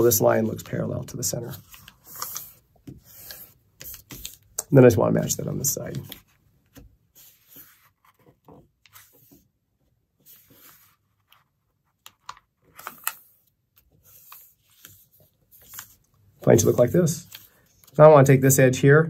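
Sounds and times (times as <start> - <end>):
paper rustling and crinkling: 0.2 - 4.5, 10.2 - 18.0.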